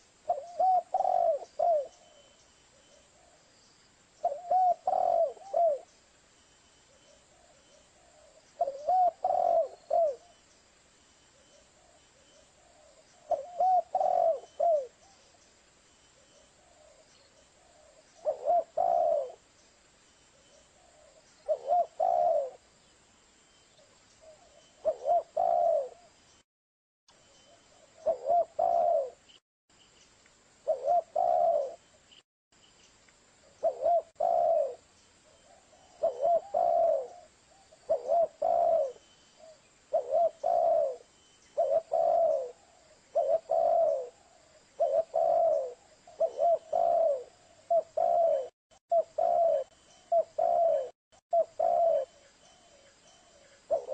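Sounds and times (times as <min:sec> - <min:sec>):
dove cooing: 0:00.0 - 0:03.4, 0:04.2 - 0:05.9, 0:07.2 - 0:10.4, 0:12.6 - 0:15.3, 0:16.6 - 0:19.5, 0:20.8 - 0:22.7, 0:24.2 - 0:26.2, 0:27.5 - 0:29.2, 0:30.6 - 0:31.8, 0:33.6 - 0:53.9.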